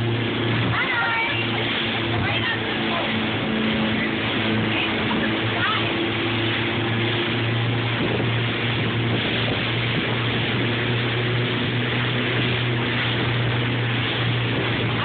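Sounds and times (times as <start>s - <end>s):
churning water: 0.0s - 15.0s
outboard motors droning: 0.0s - 15.0s.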